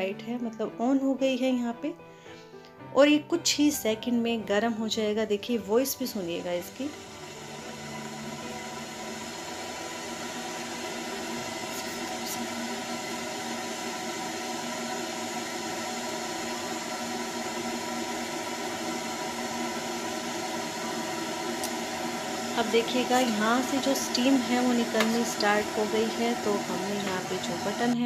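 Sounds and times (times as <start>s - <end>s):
electric kettle heating water: 4.9s - 28.0s.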